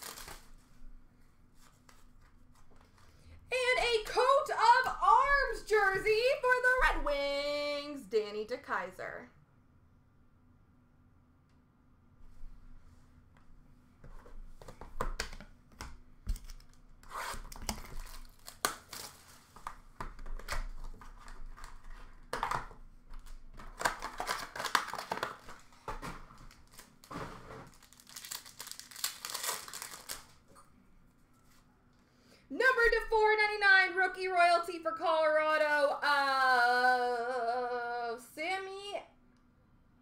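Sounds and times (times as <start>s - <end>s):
foil wrappers ripping and crinkling: 0.0s - 0.6s, 17.2s - 19.8s, 23.2s - 30.5s.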